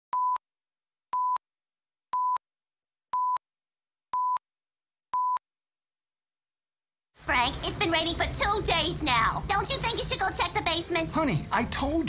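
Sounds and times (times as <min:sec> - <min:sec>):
electronic countdown beeps: 0:00.1 - 0:00.4, 0:01.1 - 0:01.4, 0:02.1 - 0:02.4, 0:03.1 - 0:03.4, 0:04.1 - 0:04.4, 0:05.1 - 0:05.4.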